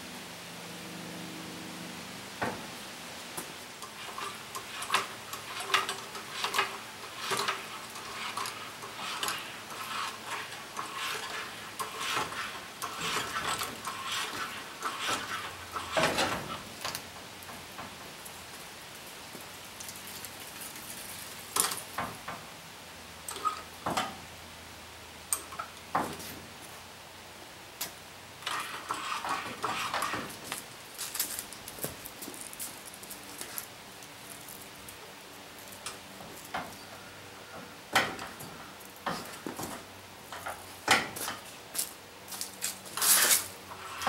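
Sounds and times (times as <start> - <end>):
metal tools clinking and scraping: 3.8 - 17.0, 23.3 - 23.7.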